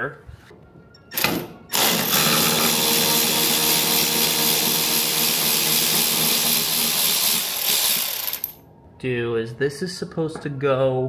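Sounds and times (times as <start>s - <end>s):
power tool running: 1.2s - 8.6s.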